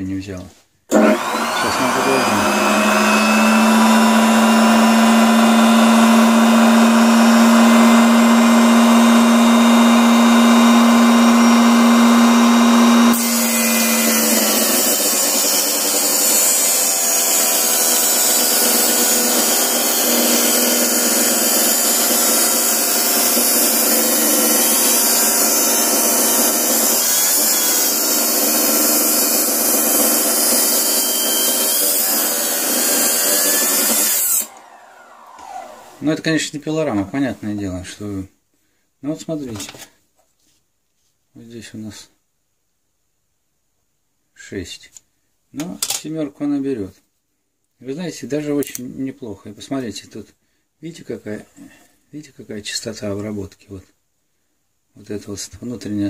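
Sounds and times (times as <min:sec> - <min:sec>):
table saw humming: 0:00.9 - 0:36.3
saw cutting through wood: 0:00.9 - 0:36.4.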